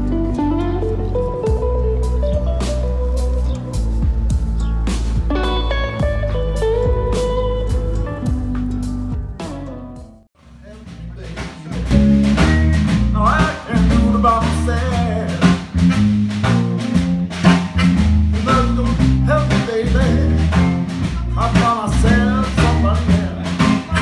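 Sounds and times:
electric guitar: 0:00.0 - 0:10.2, 0:11.9 - 0:24.0
drums: 0:00.0 - 0:24.0
upright double bass: 0:00.0 - 0:24.0
person singing: 0:11.2 - 0:15.7, 0:18.4 - 0:24.0.

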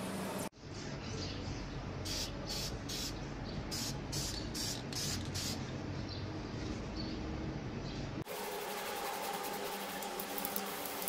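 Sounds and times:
spray paint can hissing: 0:02.1 - 0:03.1, 0:03.7 - 0:05.6.

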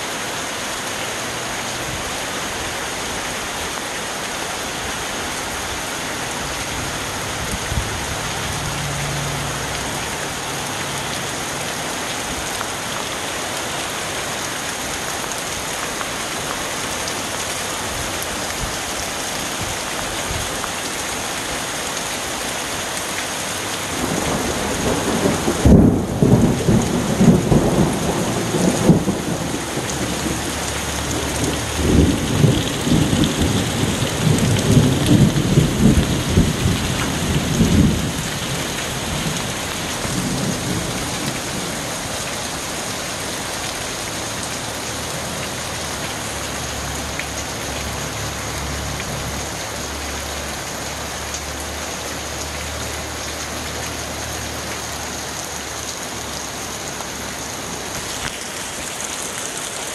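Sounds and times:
heavy rain: 0:00.0 - 0:59.9
thunder rumbling: 0:24.0 - 0:41.8.

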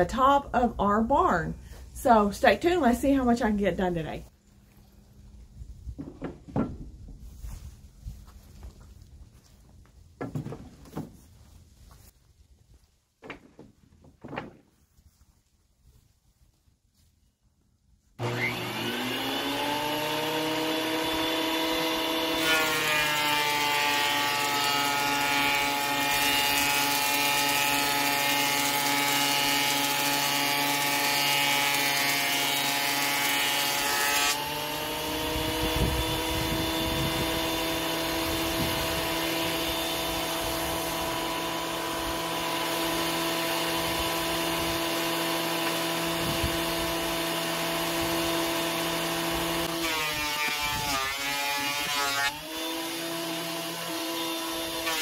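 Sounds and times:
planer knives cutting wood: 0:18.2 - 0:55.0
thickness planer running: 0:18.2 - 0:55.0.

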